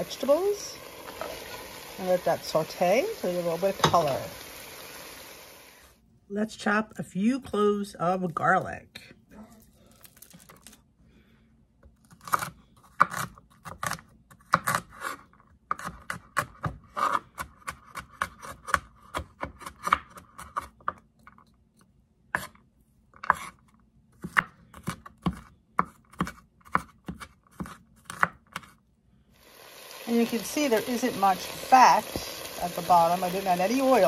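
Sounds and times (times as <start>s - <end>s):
knife chopping on wooden board: 24.2s - 28.7s.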